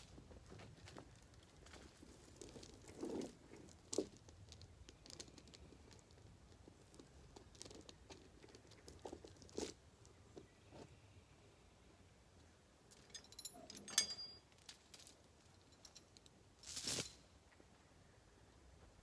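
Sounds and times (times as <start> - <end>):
metal chain clinking: 0.0 - 6.2, 6.9 - 9.8, 12.9 - 17.3
sharp chain clanks: 12.9 - 17.3.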